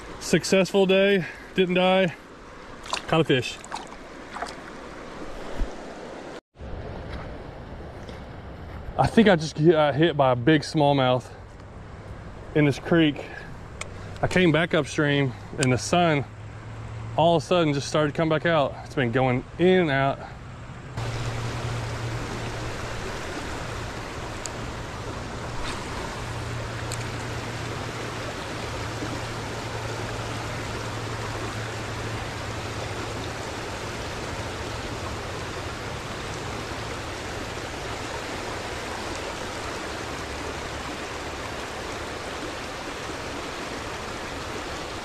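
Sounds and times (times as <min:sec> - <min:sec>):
creek water rushing over rocks: 0:00.0 - 0:07.4, 0:21.0 - 0:45.0.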